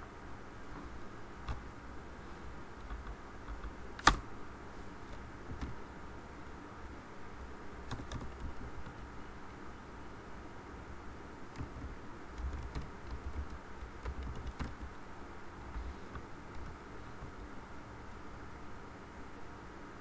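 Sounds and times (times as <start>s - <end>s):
keyboard typing: 2.8s - 4.2s, 5.1s - 5.8s, 7.8s - 9.1s, 11.5s - 15.0s, 15.6s - 17.5s
loud keyboard click: 2.8s - 4.2s, 7.9s - 9.0s, 11.6s - 14.9s.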